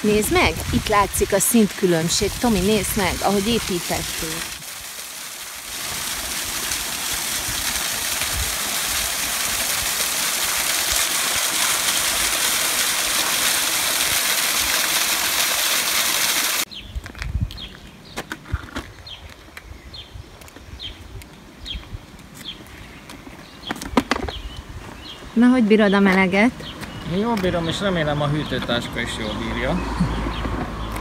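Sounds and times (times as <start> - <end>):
birds chirping: 0.0 - 4.5, 16.6 - 31.0.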